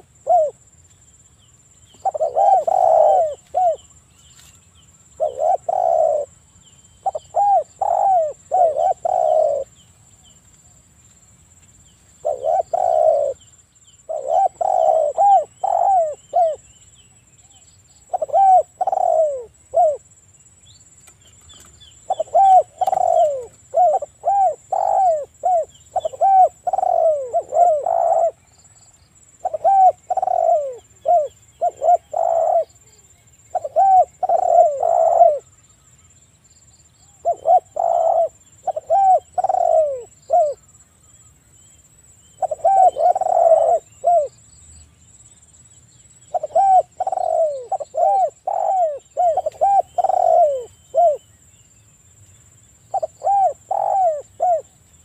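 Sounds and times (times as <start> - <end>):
dove cooing: 0.0 - 0.6, 1.9 - 4.0, 5.1 - 6.4, 7.0 - 9.8, 12.2 - 13.4, 14.0 - 16.7, 17.5 - 20.1, 22.0 - 28.5, 29.4 - 35.5, 37.1 - 40.7, 42.4 - 44.3, 46.3 - 51.2, 52.9 - 54.8.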